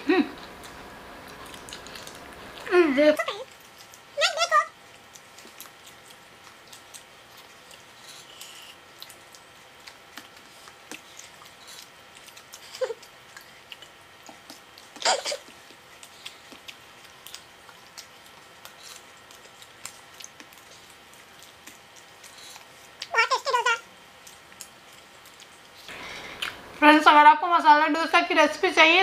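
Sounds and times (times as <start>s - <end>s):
chewing and smacking: 0.4s - 26.8s.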